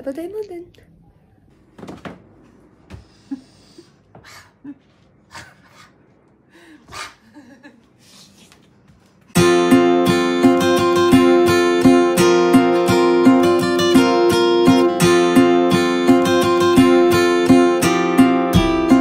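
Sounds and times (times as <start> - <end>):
strummed acoustic guitar: 9.4 - 19.0.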